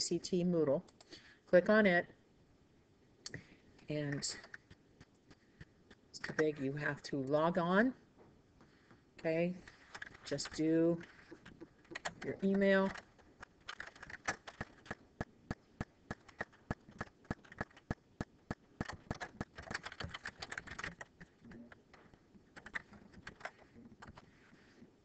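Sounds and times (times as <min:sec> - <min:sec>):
keyboard typing: 0:09.6 - 0:24.3.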